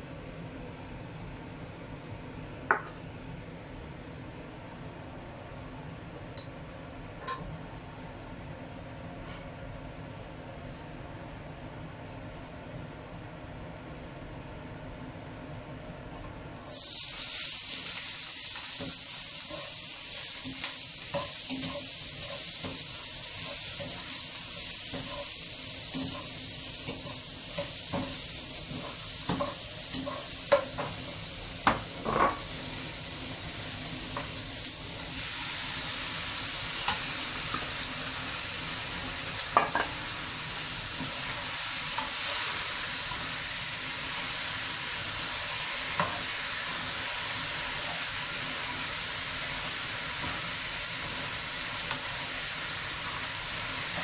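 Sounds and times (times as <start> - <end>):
vegetables sizzling in oil: 16.6 - 54.0.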